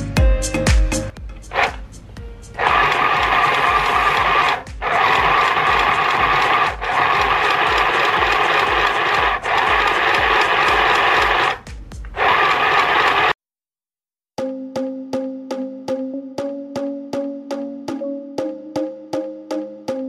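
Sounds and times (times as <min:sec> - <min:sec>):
sewing machine rattling: 0:02.6 - 0:13.4.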